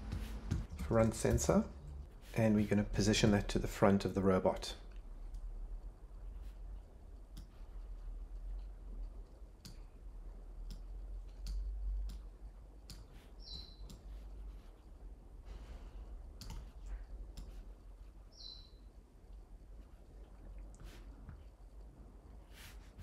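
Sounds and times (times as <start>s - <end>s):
computer mouse clicking: 8.3s - 10.0s, 10.6s - 14.1s, 16.4s - 17.6s.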